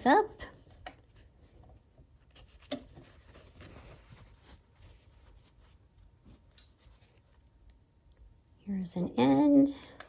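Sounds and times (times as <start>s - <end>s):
fabric rustling: 0.5s - 7.6s.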